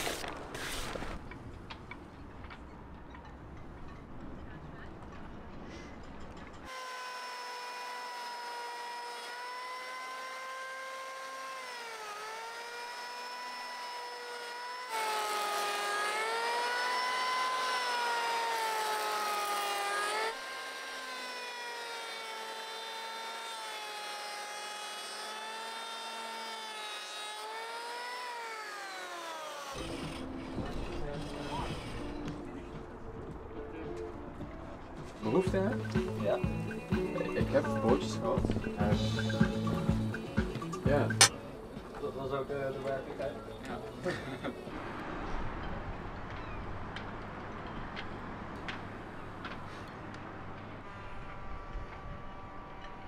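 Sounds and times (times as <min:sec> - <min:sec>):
small motor high-pitched whine: 0:06.7 - 0:32.4, 0:50.7 - 0:53.0.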